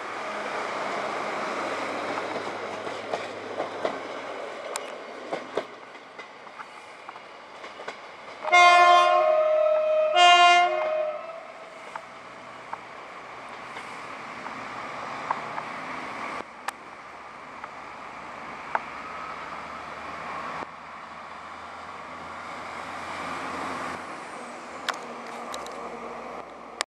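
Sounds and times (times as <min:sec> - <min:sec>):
train rumbling on rails: 0:00.0 - 0:26.8
sharp clicks of wheels: 0:24.8 - 0:25.8.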